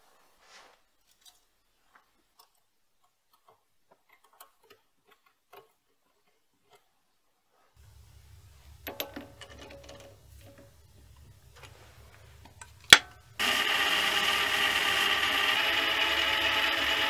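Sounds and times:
small metallic clicks and taps: 1.1 - 6.9, 8.8 - 11.8.

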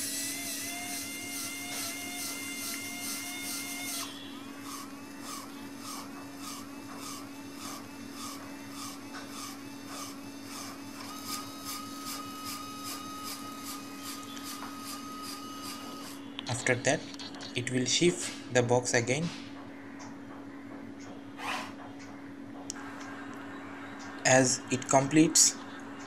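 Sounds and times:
electric whine: 0.0 - 18.1
constant low hum: 0.0 - 26.0.

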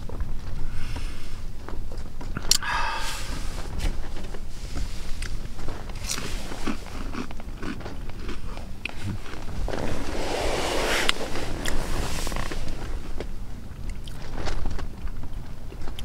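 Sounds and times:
person chewing crunchy snack: 0.6 - 10.3.

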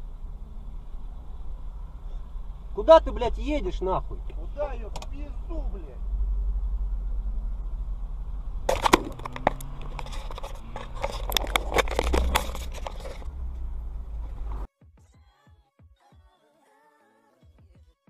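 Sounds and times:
car cabin rumble: 0.0 - 14.7
dashcam clicks and knocks: 4.9 - 5.1, 8.7 - 13.7.

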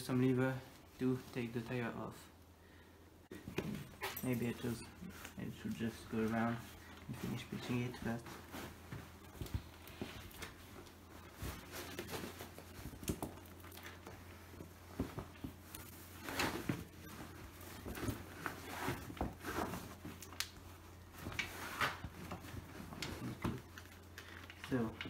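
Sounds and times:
tyre rubbing and rustling: 3.4 - 20.2.

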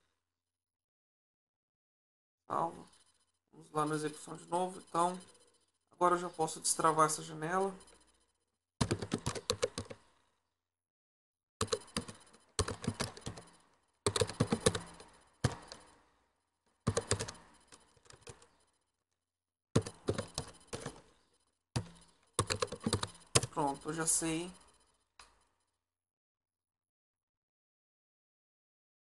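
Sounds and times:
typing on a keyboard: 8.8 - 10.1, 11.6 - 16.0, 16.9 - 18.7, 19.8 - 21.2, 21.8 - 24.8.

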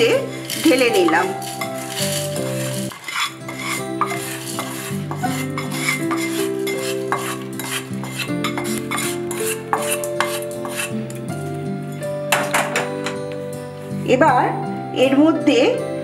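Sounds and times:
spatula scraping a pan: 0.0 - 11.3
background music: 0.0 - 16.0.

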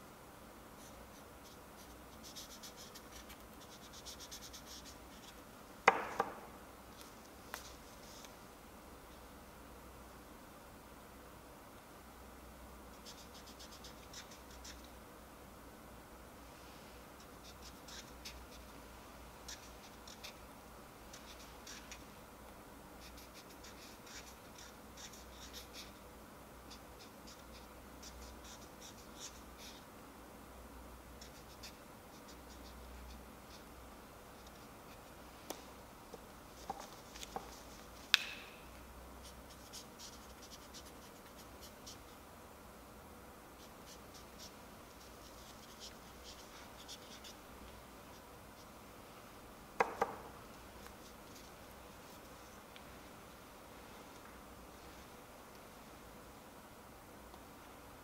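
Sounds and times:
marker scratching on ball: 0.8 - 5.4, 13.0 - 14.9, 17.2 - 18.7, 19.4 - 20.4, 21.1 - 22.1, 23.0 - 26.0, 26.7 - 29.8, 31.2 - 33.7, 36.5 - 38.2, 39.2 - 42.2, 43.6 - 47.4.

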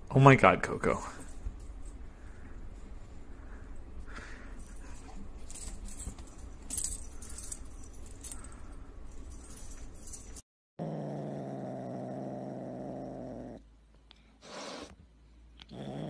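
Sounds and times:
collar chain and tag jingling: 4.1 - 10.4.

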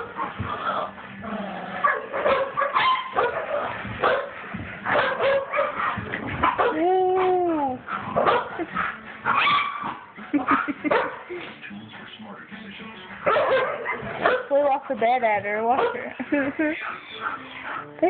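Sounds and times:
dogs barking and yipping: 0.0 - 11.5, 13.2 - 18.0
dog whining: 9.2 - 10.6.

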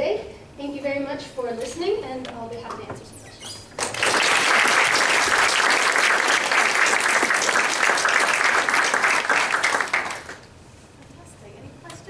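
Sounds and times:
audience clapping: 3.7 - 10.5.

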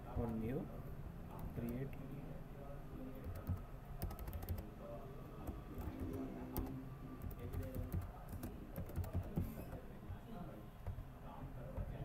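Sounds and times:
keyboard typing: 3.2 - 4.7, 5.4 - 9.8.

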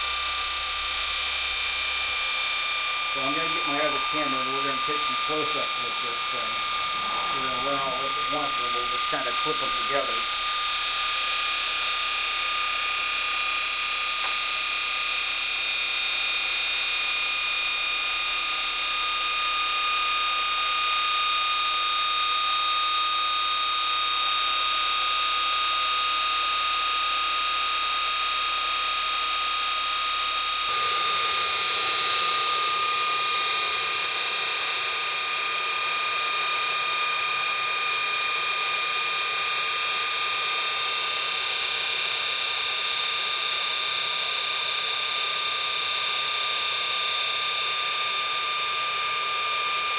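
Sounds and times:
electric motor whining: 0.0 - 11.0, 30.6 - 49.9.

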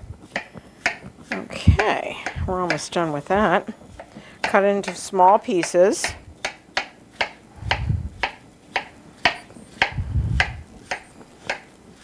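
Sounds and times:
dull low thumps: 1.5 - 2.8, 7.6 - 8.2, 9.8 - 10.8
knife chopping on cutting board: 5.6 - 11.7.

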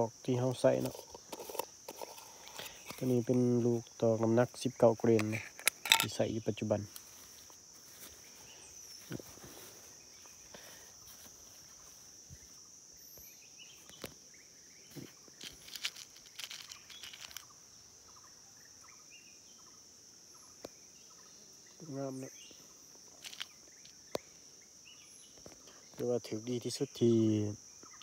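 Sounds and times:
high-pitched insect drone: 0.0 - 28.0
tin being opened: 0.8 - 3.5, 5.1 - 6.2, 14.9 - 17.5, 23.1 - 23.6
metal pellets clicking: 5.1 - 6.2, 15.4 - 17.5, 23.2 - 24.0.

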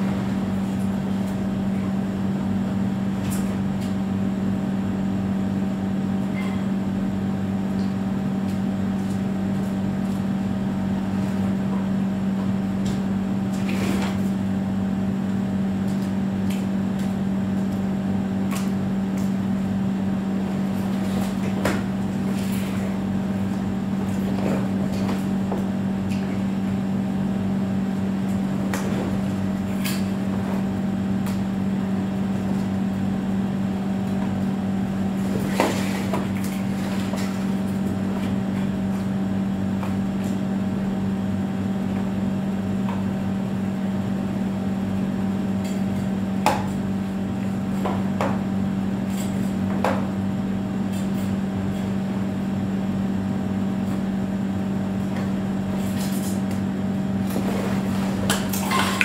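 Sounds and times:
machine hum: 0.0 - 59.0.

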